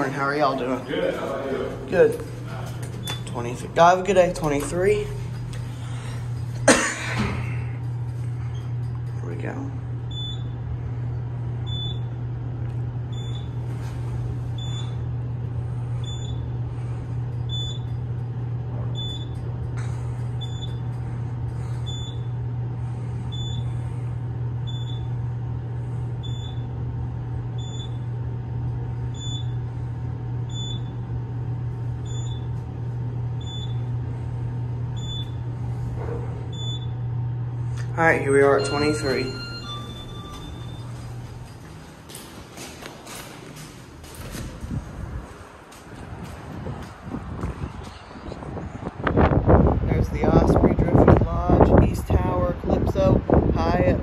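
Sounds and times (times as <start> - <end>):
elevator hum: 0.0 - 54.0
short high-pitched beep: 38.5 - 40.9.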